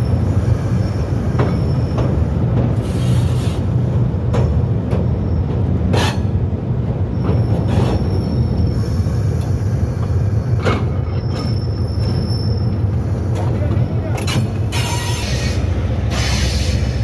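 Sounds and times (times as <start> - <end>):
high wheel squeal: 0.0 - 2.2, 7.1 - 13.5, 14.3 - 17.0
locomotive rumbling: 0.0 - 17.0.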